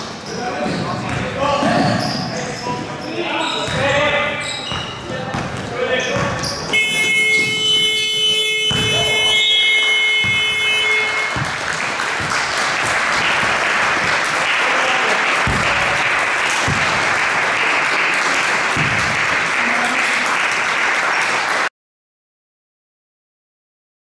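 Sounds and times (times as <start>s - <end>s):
scoreboard horn: 6.7s - 11.8s
crowd applauding: 9.0s - 21.7s.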